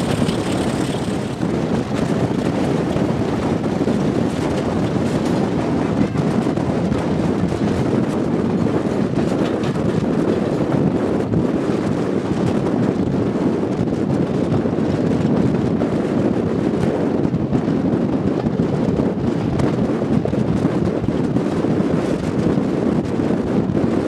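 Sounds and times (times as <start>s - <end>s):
diesel locomotive engine working: 0.0s - 17.6s
wind buffeting microphone: 0.0s - 24.0s.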